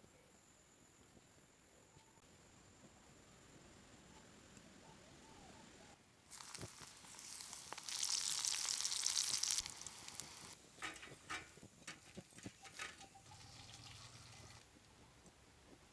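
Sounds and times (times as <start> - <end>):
mushrooms deep-frying in hot oil: 6.3 - 14.6.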